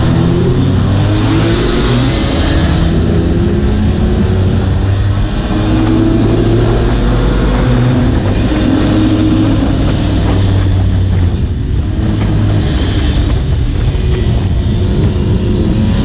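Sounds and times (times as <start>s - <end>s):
other scooter engines: 0.0s - 16.0s
two-stroke scooter engine racing: 0.0s - 16.0s
wind rushing over microphone: 0.0s - 16.0s.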